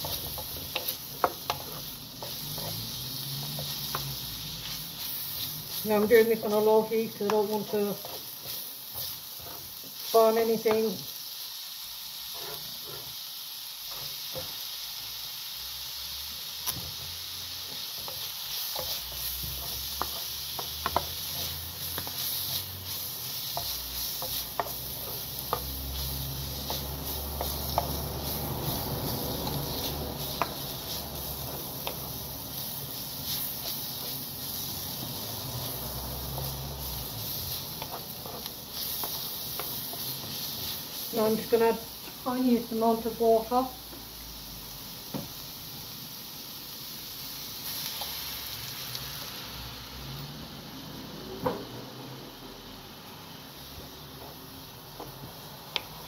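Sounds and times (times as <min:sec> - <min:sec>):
wooden spatula scraping a pan: 0:00.0 - 0:11.0, 0:12.2 - 0:13.2, 0:17.6 - 0:43.0
vegetables sizzling in a frying pan: 0:00.0 - 0:56.0.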